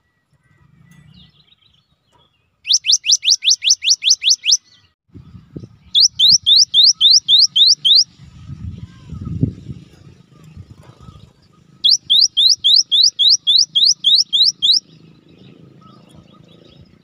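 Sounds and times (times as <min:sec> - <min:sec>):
bird whistling rising notes: 0:02.7 - 0:04.8, 0:05.8 - 0:08.2, 0:11.6 - 0:14.9.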